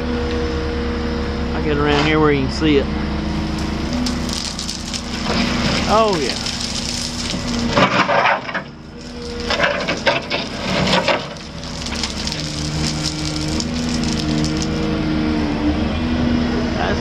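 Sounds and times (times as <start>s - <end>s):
diesel engine humming: 0.0s - 17.0s
excavator bucket scraping metal: 5.1s - 14.8s.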